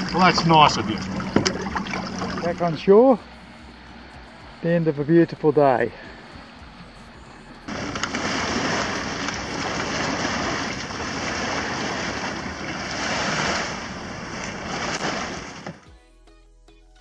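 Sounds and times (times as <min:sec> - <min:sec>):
water rushing and splashing: 0:00.0 - 0:03.4, 0:07.7 - 0:15.8.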